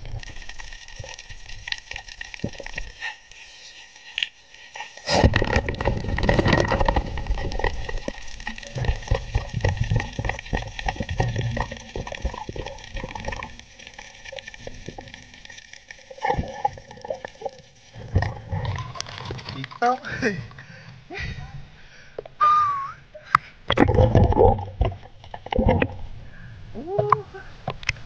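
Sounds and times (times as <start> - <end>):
low rumble of water movement: 0.0 - 22.2, 23.1 - 28.0
underwater clicks and knocks: 5.1 - 19.8, 23.3 - 26.1, 27.0 - 28.0.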